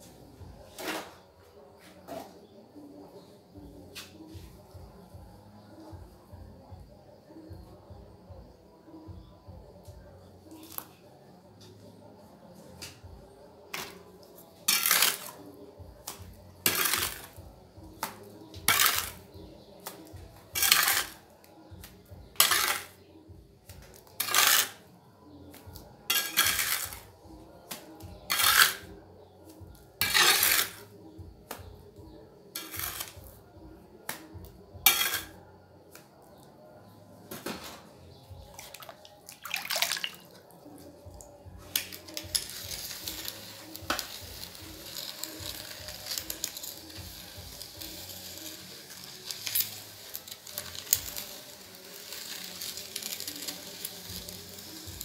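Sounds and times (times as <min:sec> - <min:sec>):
trowel scraping wet mortar: 0:14.6 - 0:15.4, 0:16.7 - 0:17.4, 0:18.2 - 0:21.3, 0:22.3 - 0:23.0, 0:23.8 - 0:24.9, 0:26.1 - 0:27.1, 0:27.8 - 0:28.9, 0:30.0 - 0:30.9, 0:32.5 - 0:33.3, 0:34.8 - 0:35.4.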